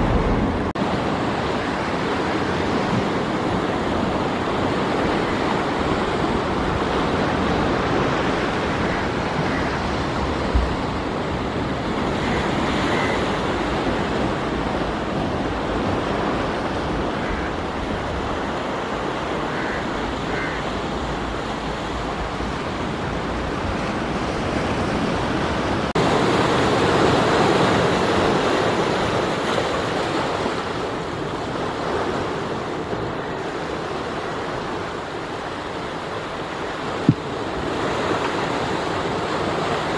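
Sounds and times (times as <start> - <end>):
low thump: 0.0 - 0.7
surf washing over rocks: 0.0 - 39.9.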